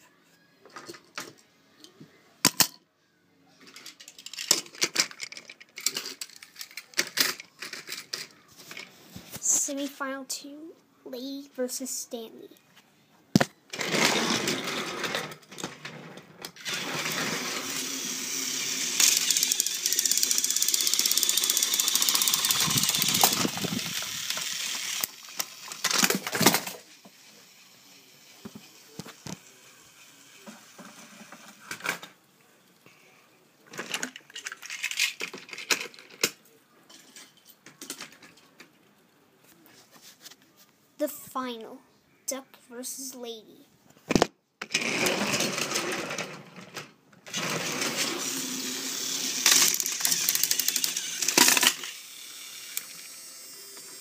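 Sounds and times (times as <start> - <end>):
toy train motors whirring: 3.6 - 8.9, 13.7 - 15.8, 16.4 - 32.2, 33.7 - 36.4, 44.6 - 54.0.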